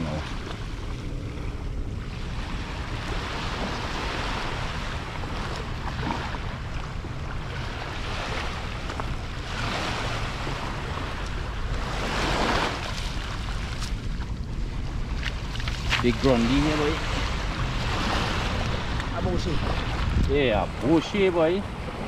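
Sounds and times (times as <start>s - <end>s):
small waves on sandy shore: 0.0s - 22.0s
wind on microphone: 0.2s - 22.0s.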